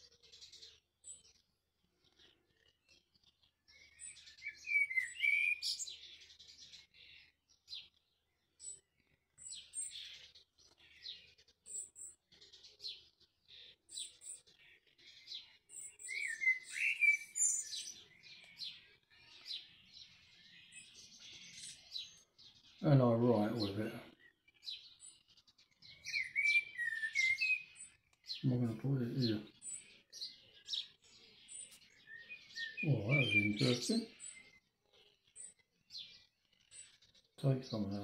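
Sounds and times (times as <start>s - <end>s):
songbird chirps and trills: 0.0s - 38.0s
songbird warbling phrases: 4.0s - 6.1s, 15.7s - 19.5s, 22.8s - 24.3s, 25.9s - 30.9s, 31.5s - 34.5s, 37.4s - 38.0s.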